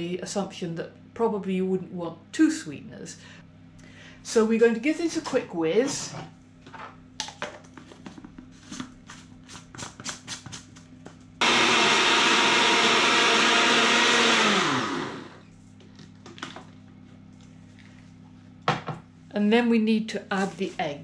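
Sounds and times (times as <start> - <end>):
blender motor whizzing: 11.4 - 15.4.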